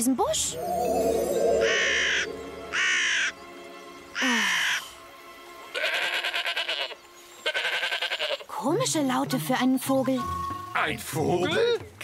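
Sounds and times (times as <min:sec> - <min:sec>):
soft background music: 0:00.0 - 0:11.6
harsh crow-like caws: 0:01.7 - 0:03.3, 0:04.2 - 0:04.9, 0:05.8 - 0:08.4
quavering sheep-like bleat: 0:05.7 - 0:08.5.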